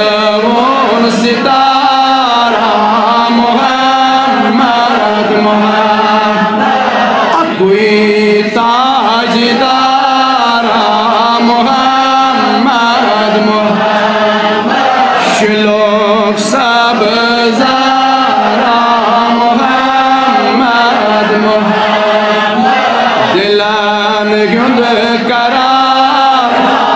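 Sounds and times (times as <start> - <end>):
man singing devotional song: 0.0 - 26.9.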